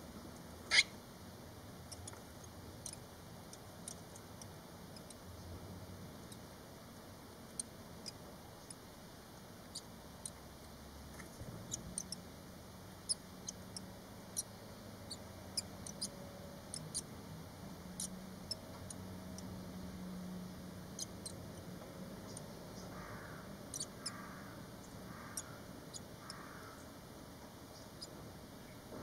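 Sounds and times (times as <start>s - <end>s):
nestlings squeaking peeps: 0.4s - 1.0s, 1.8s - 5.2s, 7.5s - 8.9s, 11.2s - 12.3s, 13.0s - 17.1s, 17.9s - 19.5s, 20.9s - 21.5s, 22.2s - 26.7s.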